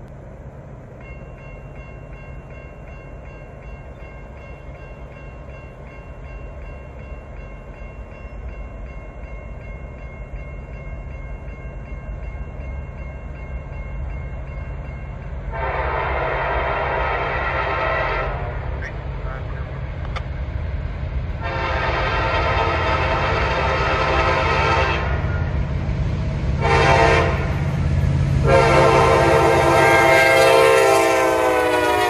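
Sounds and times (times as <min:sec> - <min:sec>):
diesel locomotive engine rumble: 0:00.0 - 0:32.0
locomotive air horn: 0:15.5 - 0:19.0, 0:21.4 - 0:25.5, 0:26.6 - 0:27.7, 0:28.4 - 0:32.0.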